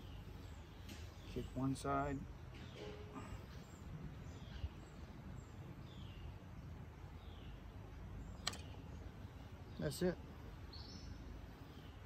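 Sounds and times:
sharp metallic click: 0:08.4 - 0:08.8.

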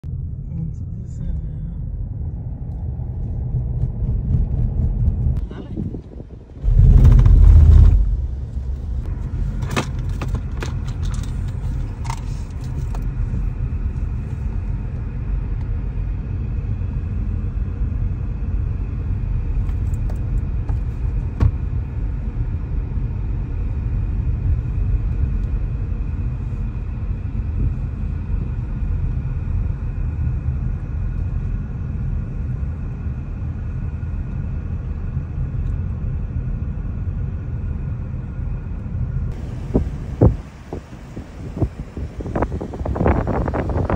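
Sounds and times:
road and engine rumble: 0:00.0 - 0:43.9
low buffeting thud: 0:03.2 - 0:10.6, 0:20.6 - 0:21.8, 0:39.3 - 0:43.9.

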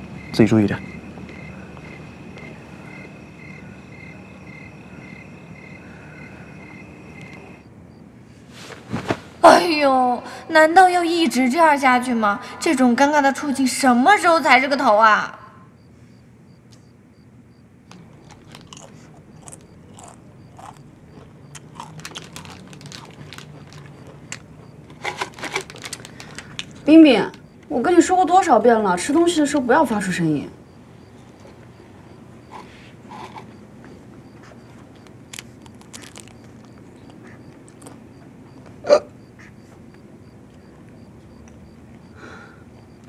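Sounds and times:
crickets chirping: 0:00.0 - 0:43.0
low background hum: 0:00.0 - 0:43.0
person chewing crunchy food: 0:17.9 - 0:26.9, 0:34.4 - 0:38.7.

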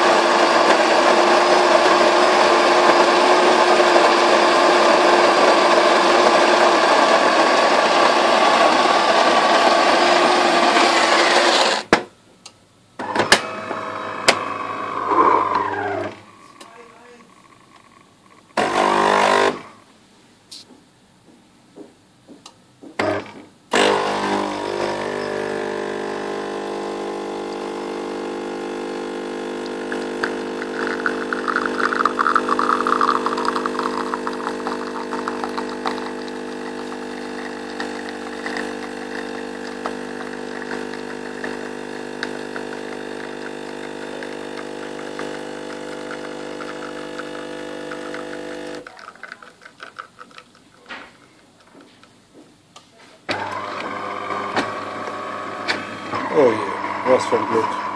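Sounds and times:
coffee machine pump humming: 0:00.0 - 0:11.8, 0:13.0 - 0:17.8, 0:23.0 - 0:51.1, 0:53.3 - 0:57.9
coffee streaming hiss: 0:24.2 - 0:50.4.

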